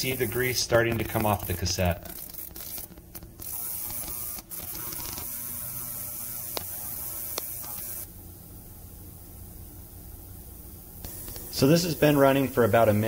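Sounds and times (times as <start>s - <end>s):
sharp ticks: 0.0s - 5.4s, 6.4s - 8.0s
ultrasonic cleaner humming: 0.0s - 13.0s.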